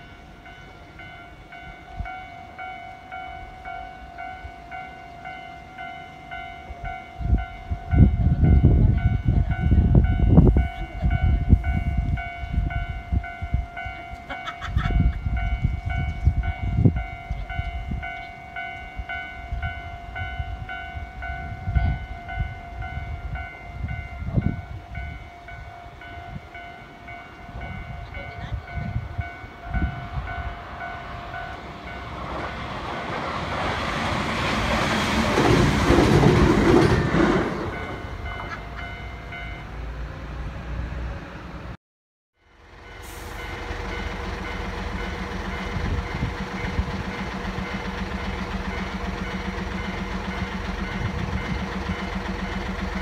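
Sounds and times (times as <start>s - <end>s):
wind rumbling on microphone: 7.1s - 13.8s, 14.7s - 18.2s, 18.9s - 26.6s, 27.4s - 31.4s, 45.6s - 47.1s.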